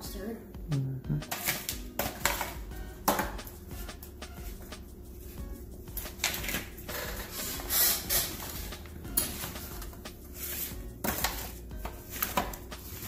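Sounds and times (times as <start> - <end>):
background music: 0.0 - 13.0
utensil scraping pan of fries: 6.0 - 13.0.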